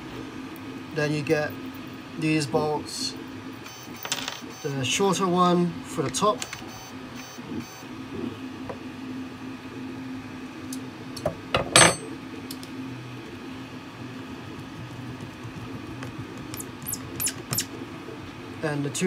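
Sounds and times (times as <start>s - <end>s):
low steady hum: 8.0s - 19.0s
parts clattering on table: 11.6s - 12.1s.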